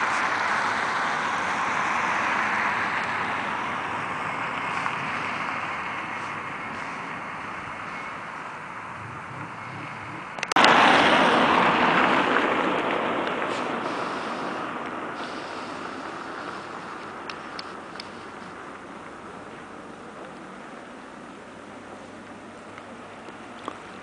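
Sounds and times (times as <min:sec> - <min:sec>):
wind rushing: 0:00.0 - 0:18.7.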